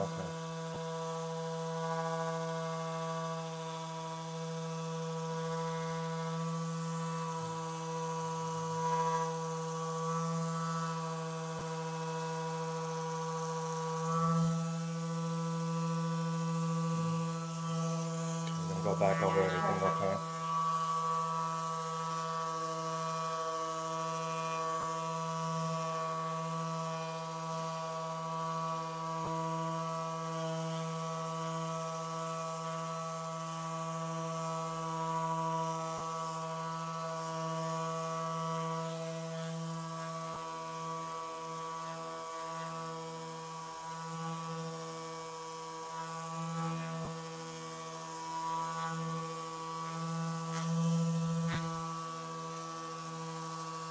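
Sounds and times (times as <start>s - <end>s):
massage gun motor hum: 0.0s - 53.9s.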